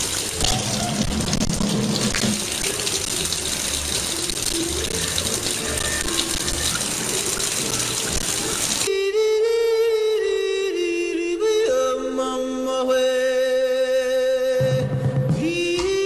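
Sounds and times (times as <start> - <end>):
tap water splashing into sink: 0.0 - 8.9.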